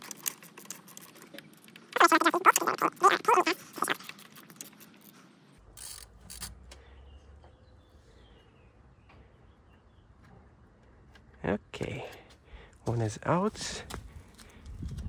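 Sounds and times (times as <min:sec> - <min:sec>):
ratchet wrench clicking: 0:05.8 - 0:06.5.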